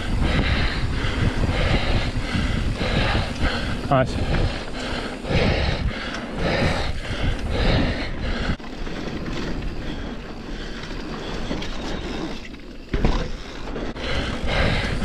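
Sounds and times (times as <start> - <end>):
bike tyres rolling on dirt: 0.0 - 15.0.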